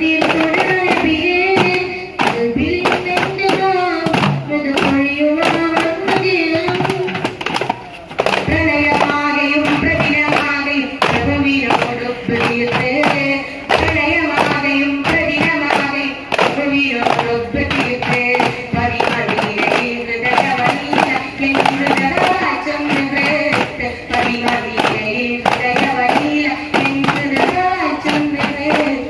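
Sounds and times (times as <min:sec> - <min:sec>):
person singing devotional song: 0:00.0 - 0:07.5, 0:08.3 - 0:29.0
frame drums beating: 0:00.0 - 0:29.0.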